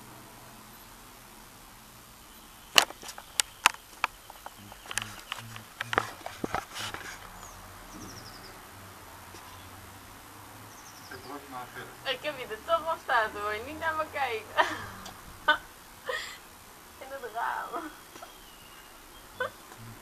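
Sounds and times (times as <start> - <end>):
bird twittering faintly: 2.0 - 20.0
sharp clicks and knocks: 2.7 - 7.3.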